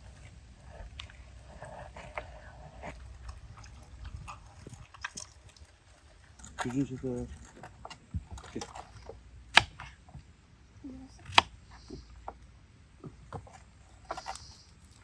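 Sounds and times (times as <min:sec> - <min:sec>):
faint handling ticks and rustles: 0:00.0 - 0:09.2.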